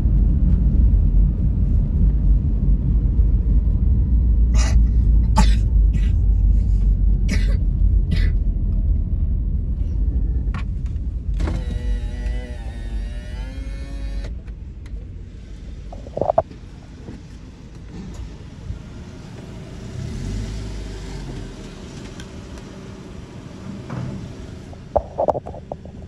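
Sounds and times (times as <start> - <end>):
electric window motor whining: 11.4 - 14.4
car engine idling: 21.4 - 26.0.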